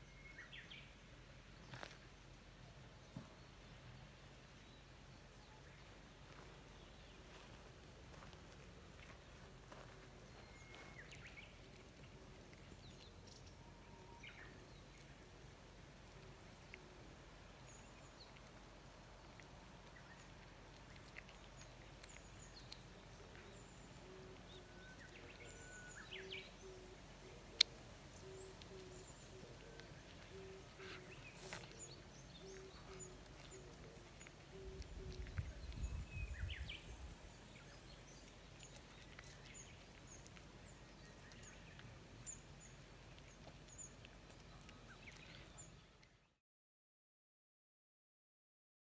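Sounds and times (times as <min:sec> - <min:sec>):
distant birds chirping: 0:19.3 - 0:46.0.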